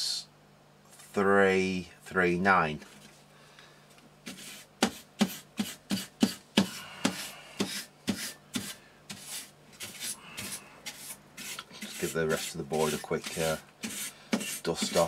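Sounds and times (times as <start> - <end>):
brush scrubbing circuit board: 7.1 - 15.0.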